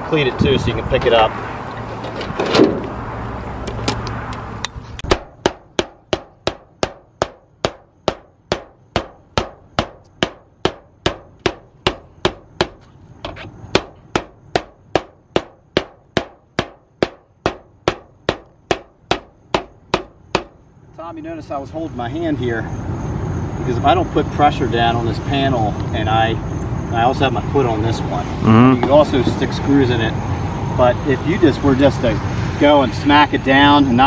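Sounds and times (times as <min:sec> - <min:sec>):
mallet pounding metal roof panel: 0:05.1 - 0:20.6.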